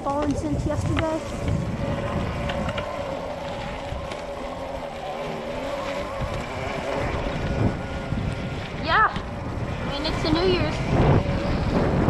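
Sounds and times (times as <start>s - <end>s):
tyres on dry leaves: 0.0s - 9.0s
wind rumble: 0.0s - 12.0s
electric motor whine: 0.6s - 12.0s.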